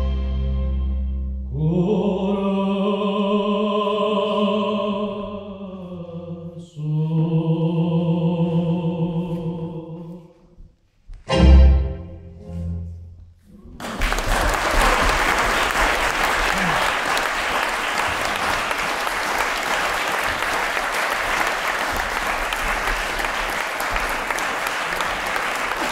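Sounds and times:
audience applause: 13.8 - 25.9.

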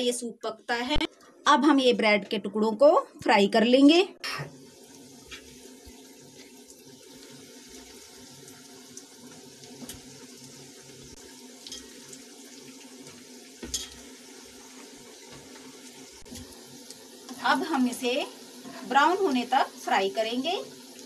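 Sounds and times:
bread frying in hot oil: 4.4 - 21.0.

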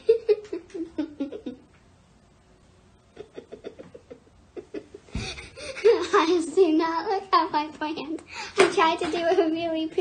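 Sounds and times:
person giggling: 0.0 - 1.7, 3.1 - 6.1.

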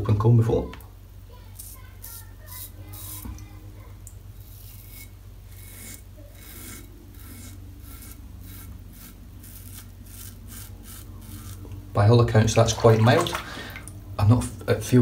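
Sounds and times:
razor rasping on stubble: 1.6 - 3.3, 4.4 - 11.8.

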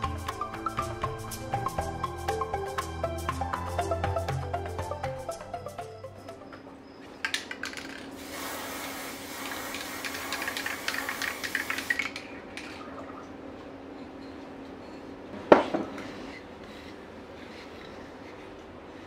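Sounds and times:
aerosol can spraying: 8.2 - 12.1.

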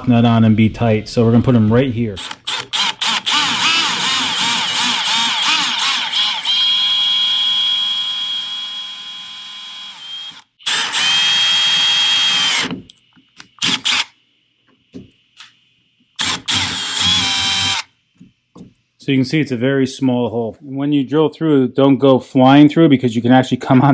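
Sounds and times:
cordless drill whining: 2.2 - 12.9, 13.6 - 14.1, 16.2 - 17.9.

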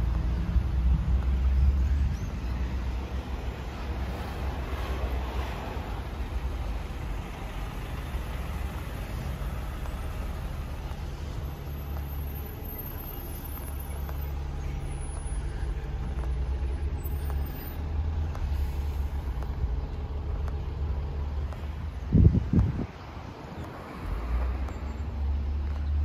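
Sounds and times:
vehicle engine rumbling: 0.0 - 26.0.

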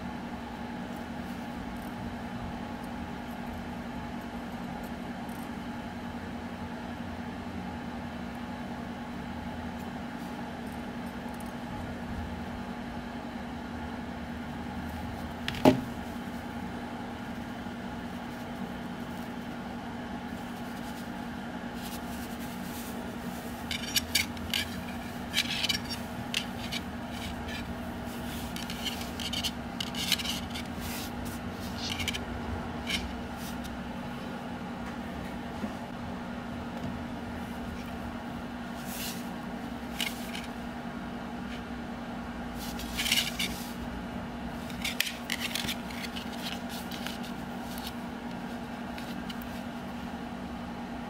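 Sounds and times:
steady low hum: 0.0 - 51.0
wire clicks and scrapes: 21.8 - 32.2, 32.8 - 33.7, 39.9 - 40.6, 42.6 - 43.8, 44.6 - 49.6.

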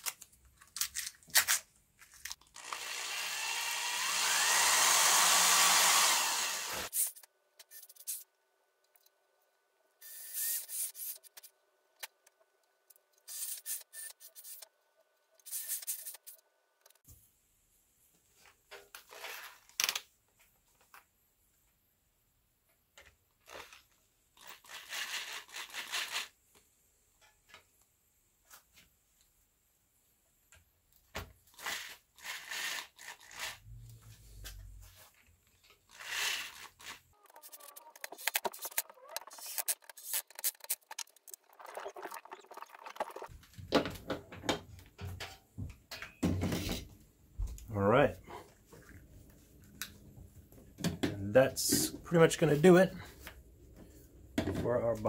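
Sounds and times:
cordless drill bursts: 2.6 - 6.9.

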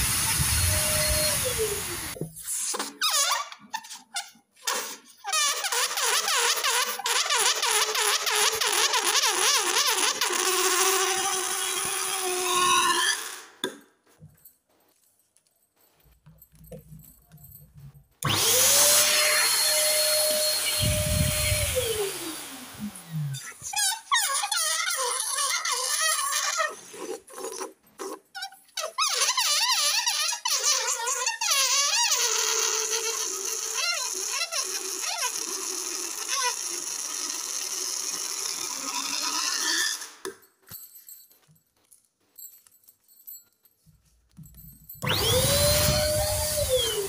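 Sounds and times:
balloon air squealing: 0.0 - 13.6, 18.2 - 27.2, 28.8 - 40.2, 45.0 - 47.0.

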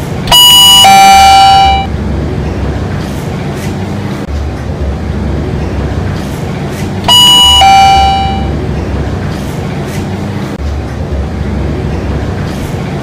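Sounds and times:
two-tone elevator bell: 0.3 - 1.9, 7.1 - 8.5.

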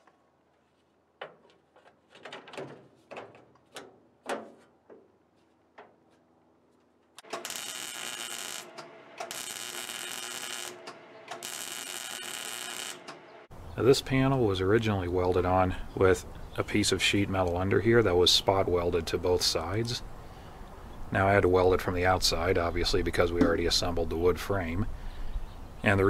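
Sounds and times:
sheet metal knocking and clunking: 1.2 - 5.1
welder crackling: 7.2 - 13.5.

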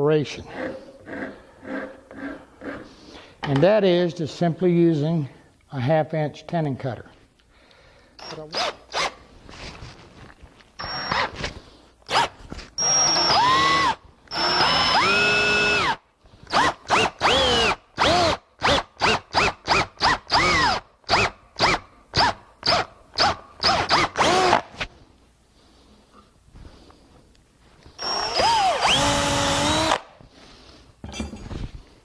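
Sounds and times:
drill motor whirring: 10.8 - 11.3, 12.1 - 24.8, 28.0 - 30.1.

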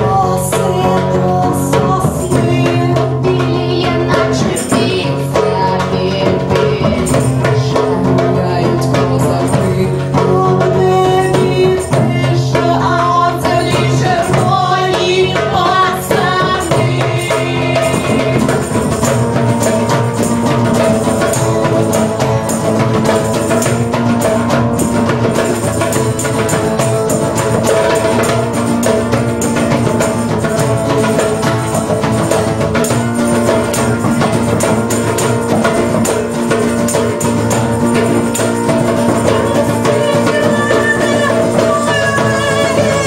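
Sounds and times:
woman singing: 0.0 - 20.1, 37.9 - 43.0
acoustic guitar: 0.0 - 43.0
hand drum: 0.0 - 43.0
tambourine: 16.6 - 43.0.

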